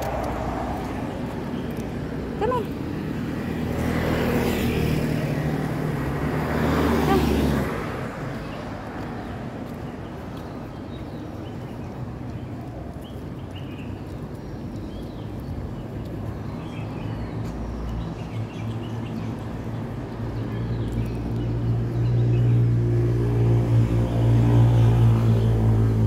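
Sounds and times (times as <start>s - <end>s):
traffic rumble: 0.0s - 26.0s
vehicle engine hum: 0.0s - 26.0s.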